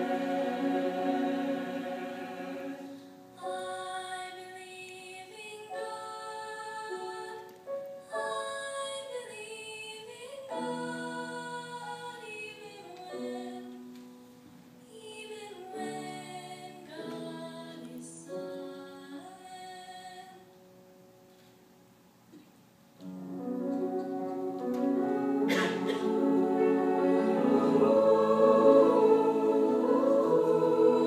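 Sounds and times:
lower accompaniment: 0.0s - 3.2s, 23.0s - 31.0s
woman singing slow melody: 3.4s - 7.5s, 8.1s - 13.8s, 14.9s - 20.5s.

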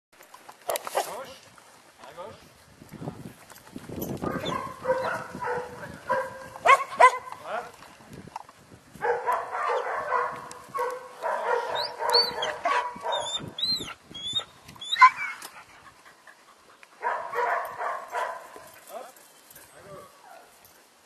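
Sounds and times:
dog barking and yapping: 4.2s - 7.4s, 9.0s - 15.6s, 17.0s - 18.7s
small birds chirping: 11.6s - 15.4s.

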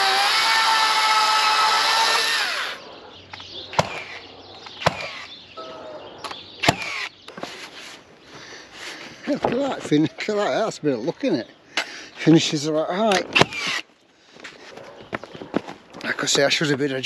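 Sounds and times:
cordless power tool running: 0.0s - 2.8s
sharp knocks on wood: 4.8s - 5.1s.

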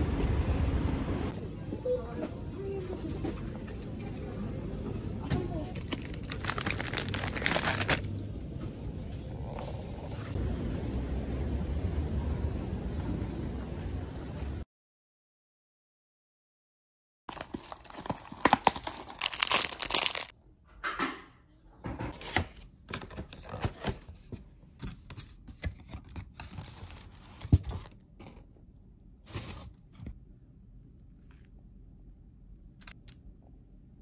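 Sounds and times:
aluminium foil crinkling: 5.8s - 8.1s, 17.3s - 20.3s
cardboard box tearing: 17.3s - 20.3s.

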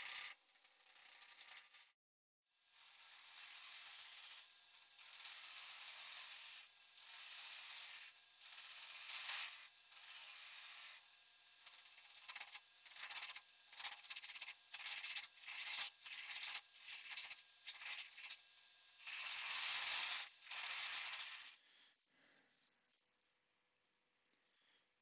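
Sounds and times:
lathe tool cutting wood hiss: 2.8s - 18.4s, 19.0s - 21.6s.

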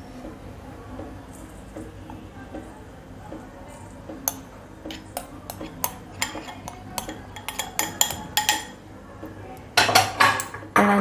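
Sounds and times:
spoon scraping and knocking bowls: 4.3s - 8.8s.

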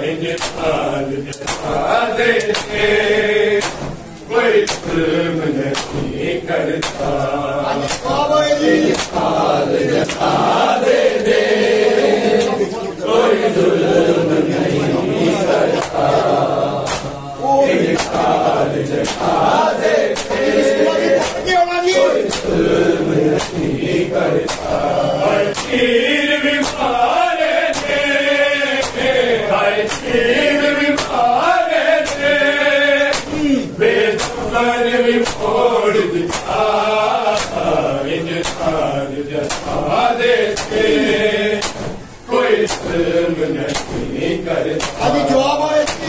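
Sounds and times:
men chanting in unison: 0.0s - 46.0s
hands slapping chests: 0.2s - 11.4s, 15.8s - 16.2s, 16.8s - 17.2s, 17.8s - 20.5s, 21.1s - 21.6s, 22.2s - 25.9s, 26.6s - 28.1s, 28.8s - 29.2s, 29.8s - 32.4s, 33.0s - 33.6s, 34.2s - 34.6s, 35.2s - 35.6s, 36.3s - 37.8s, 38.4s - 38.8s, 39.4s - 39.9s, 40.5s - 42.0s, 42.6s - 44.1s, 44.8s - 45.2s.

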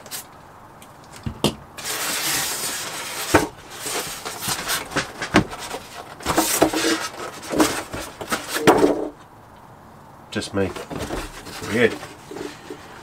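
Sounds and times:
foam scraping against cardboard: 1.8s - 8.9s, 10.7s - 13.0s.

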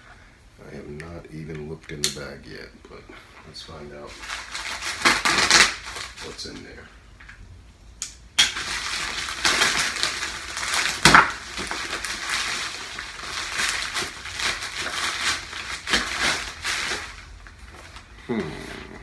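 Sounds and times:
mailing bag rustling: 3.6s - 6.8s, 8.5s - 18.6s
sharp rip of bag: 4.5s - 6.2s.

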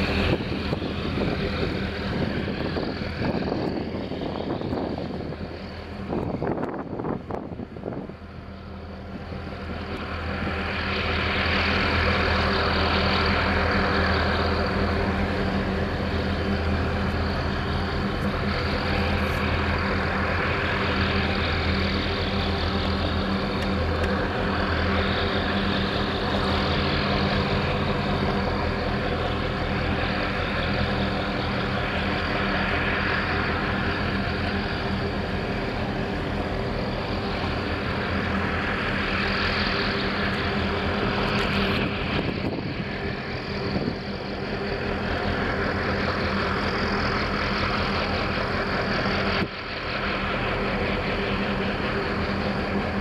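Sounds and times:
wind noise: 0.0s - 8.2s, 41.2s - 44.1s
boat engine humming: 0.0s - 53.0s.

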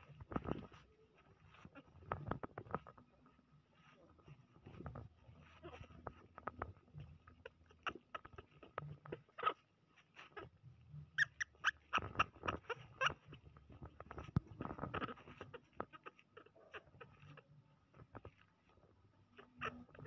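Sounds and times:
soft clicks and rustles: 0.0s - 20.0s
baby monkey squeaky calls: 11.2s - 13.4s.

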